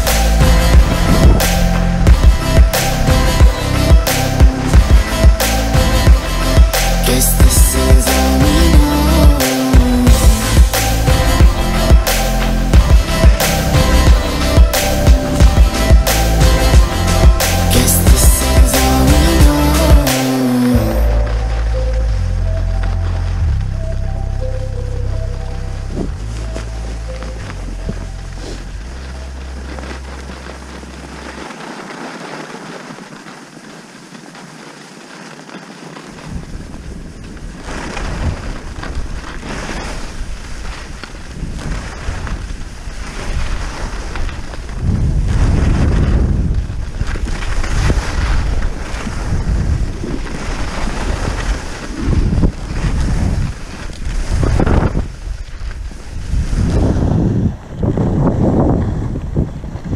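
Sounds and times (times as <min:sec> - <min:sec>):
wind buffeting microphone: 0:00.0 - 0:06.8, 0:36.1 - 0:59.9
skis sliding on snow: 0:00.0 - 0:23.7, 0:25.8 - 0:59.9.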